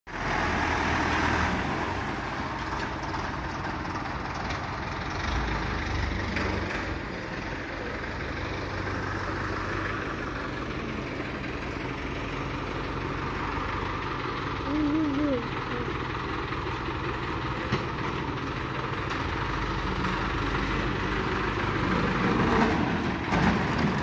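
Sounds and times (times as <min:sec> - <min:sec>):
tractor engine idling: 0:00.1 - 0:24.0.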